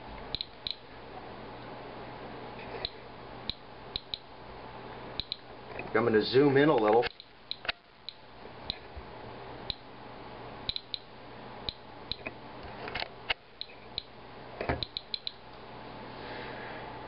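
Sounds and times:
geiger counter clicking: 0.3 - 0.8, 2.8 - 4.3, 5.2 - 5.5, 6.8 - 8.9, 9.6 - 9.8, 10.7 - 11.1, 11.7 - 12.4, 13.3 - 15.4.

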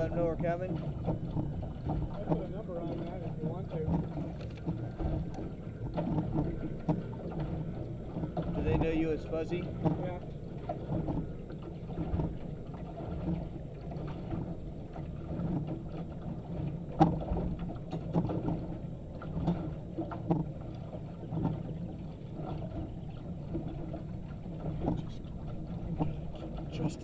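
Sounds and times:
water lapping against boat hull: 0.0 - 27.0
small knocks: 0.3 - 12.4, 13.1 - 21.8.

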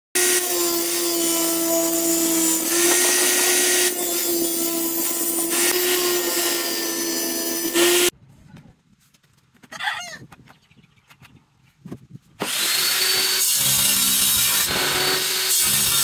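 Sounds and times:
table saw cutting wood: 0.2 - 8.1, 12.4 - 16.0.

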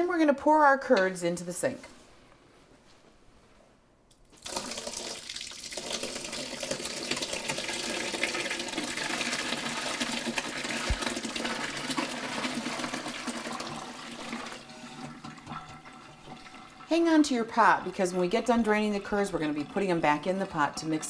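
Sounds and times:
liquid splashing pour: 4.3 - 21.0.

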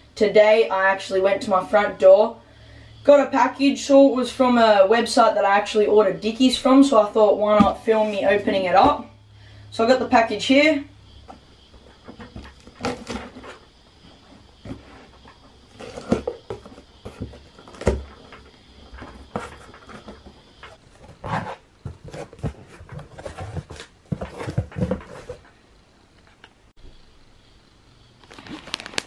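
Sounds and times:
cardboard box scraping and rustling: 7.5 - 9.0, 11.3 - 25.5.

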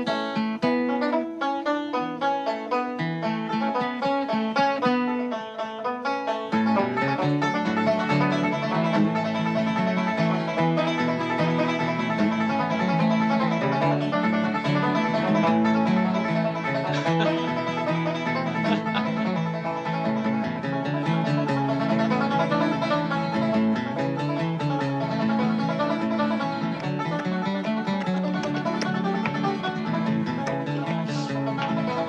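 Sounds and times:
banjo and guitar bluegrass music: 0.0 - 32.0.

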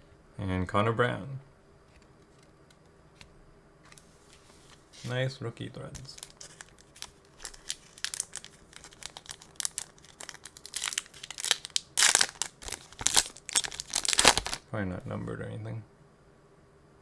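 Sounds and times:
foil wrapper crinkling: 6.0 - 14.6
foil wrapper ripping: 6.0 - 14.6.

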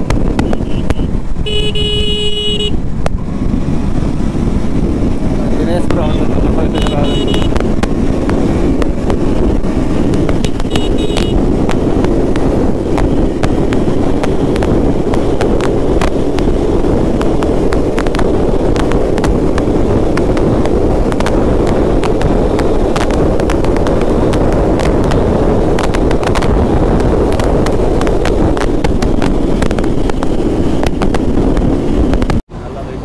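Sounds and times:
motorcycle engine: 0.0 - 33.0
wind crackles on microphone: 0.0 - 33.0
wind rushing over microphone: 0.0 - 33.0.

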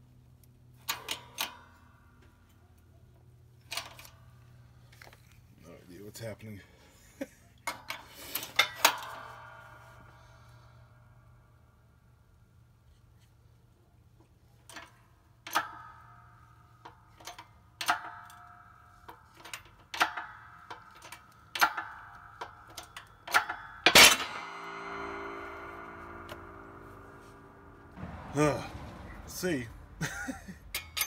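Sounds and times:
metallic pings with ring: 21.8 - 28.1
loud metal bang: 23.8 - 30.7.

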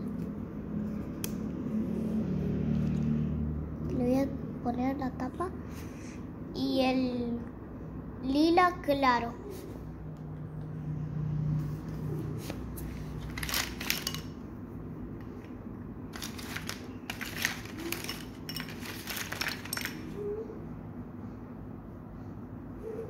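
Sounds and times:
plastic pens clattering on tile: 12.4 - 14.5, 16.1 - 20.3.

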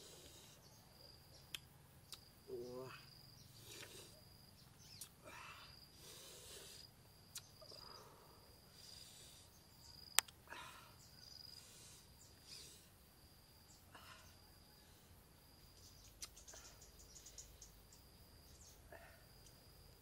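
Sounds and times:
soft hissing: 0.0 - 0.9, 2.5 - 10.2, 11.0 - 13.1
insect high-pitched trill: 0.0 - 20.0
sharp clicks: 10.1 - 10.4.

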